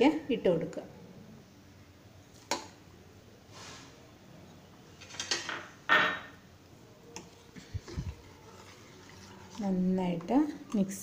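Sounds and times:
kitchenware clinking and clattering: 5.0 - 6.4.

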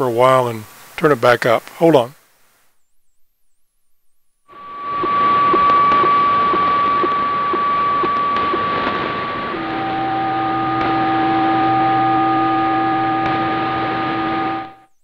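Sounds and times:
static hiss: 0.0 - 15.0
steady radio fax tone: 3.9 - 15.0.

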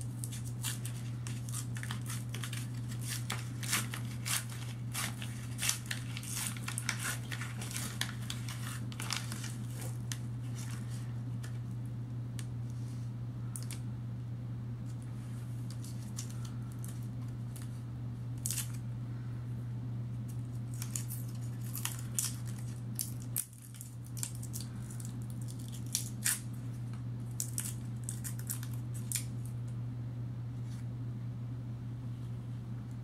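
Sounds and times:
paper wrapper crinkling: 0.0 - 11.7, 18.4 - 18.8, 20.3 - 29.5
steady low hum: 0.0 - 33.0.

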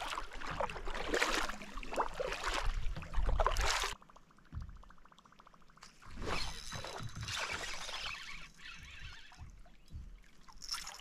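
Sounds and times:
paddle strokes swishing through water: 0.0 - 4.0
fishing reel ticking: 5.0 - 9.9.

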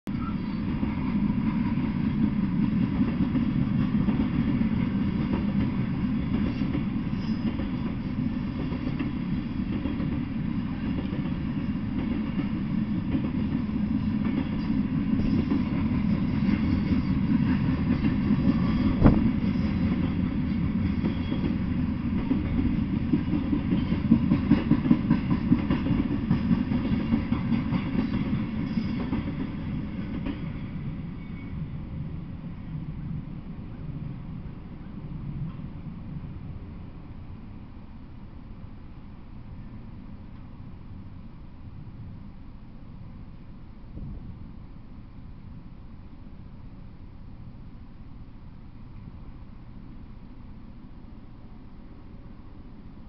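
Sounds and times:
clickety-clack over rail joints: 0.1 - 31.6, 34.8 - 36.1
freight train wheels rumbling: 0.1 - 53.0.

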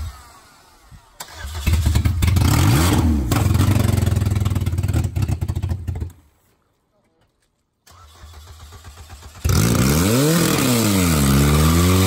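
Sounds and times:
car engine cranking on starter: 0.0 - 2.3, 7.8 - 9.6.

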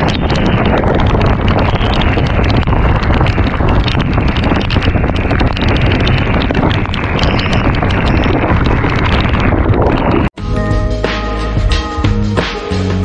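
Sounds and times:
rain ticking on camera: 0.0 - 10.4
wind buffeting microphone: 0.0 - 10.4.

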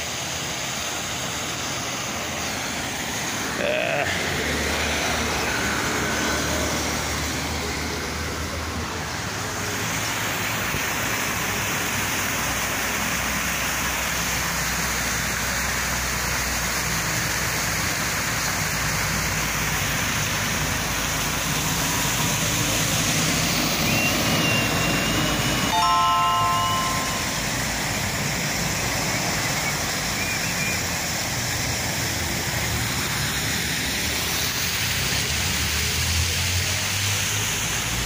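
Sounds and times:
road traffic hum: 0.0 - 38.0
truck driving past: 3.7 - 8.8.

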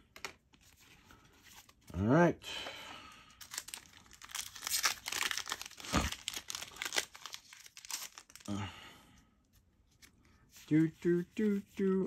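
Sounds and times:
foil pack crackling and tearing: 3.4 - 8.5.

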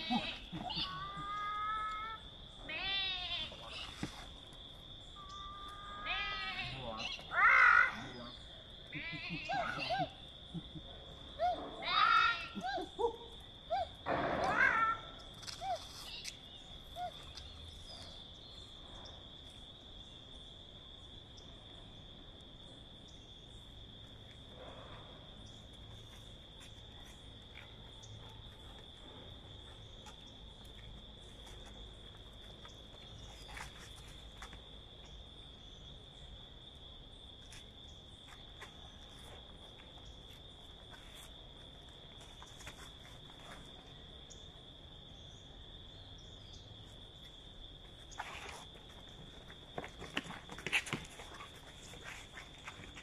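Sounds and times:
insects singing high-pitched: 5.0 - 19.2
faint scuffs: 37.4 - 43.9.

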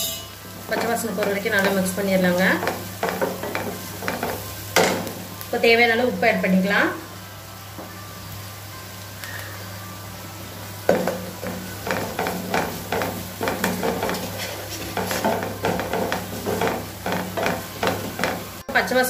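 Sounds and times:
light sizzle: 0.0 - 19.0
spatula scraping a frying pan: 11.0 - 18.7.

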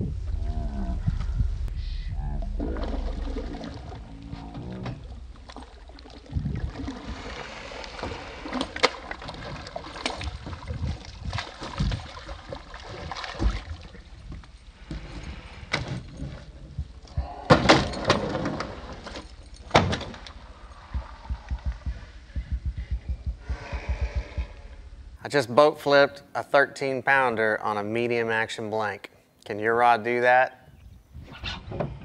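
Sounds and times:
fish slapping boat hull: 4.9 - 14.2.

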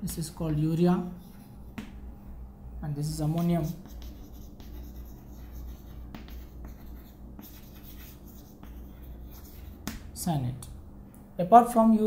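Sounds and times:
steady low hum: 0.0 - 12.0
chalk scratching on chalkboard: 1.0 - 1.9, 3.1 - 10.1
chalk tapping: 1.2 - 2.0, 3.2 - 10.2.

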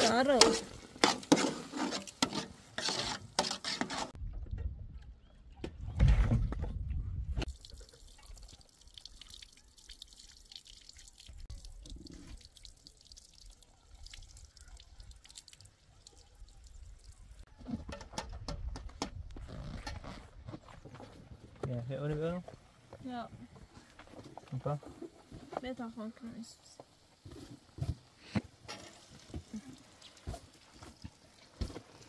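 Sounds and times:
liquid dripping and pouring: 7.4 - 17.5.

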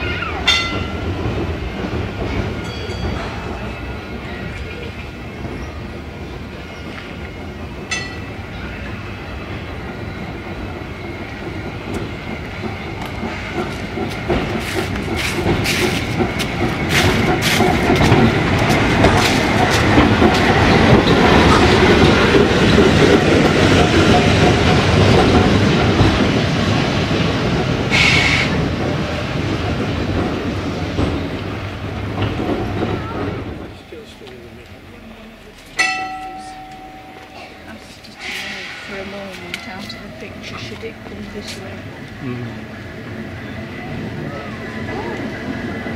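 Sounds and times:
tram passing: 0.0 - 45.9
wheels clicking over rail joints: 6.9 - 42.2.

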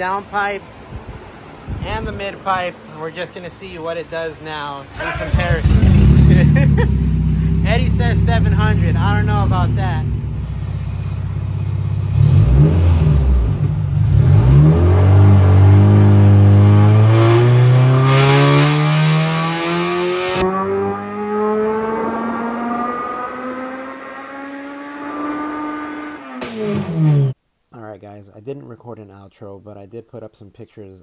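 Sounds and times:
engine revving toward redline: 4.9 - 27.4.

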